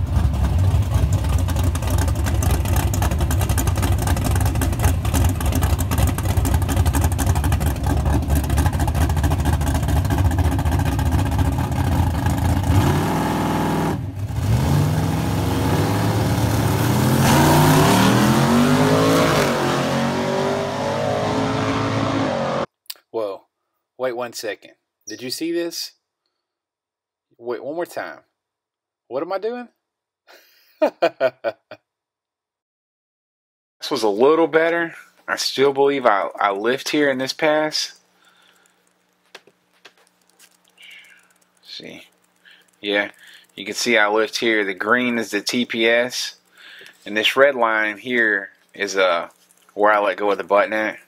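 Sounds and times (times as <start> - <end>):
car engine idling and revving: 0.0 - 22.7.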